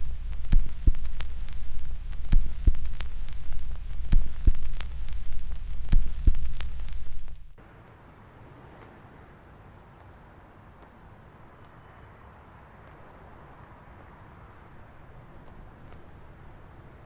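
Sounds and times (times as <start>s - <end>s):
low heartbeat thumps: 0.0s - 7.5s
static crackle: 0.0s - 9.7s.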